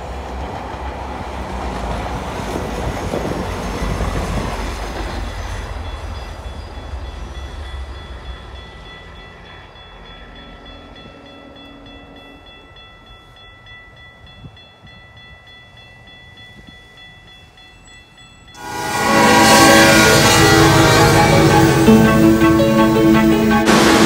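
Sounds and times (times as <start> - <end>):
level-crossing warning bell: 3.2 - 24.0
loud music: 18.6 - 24.0.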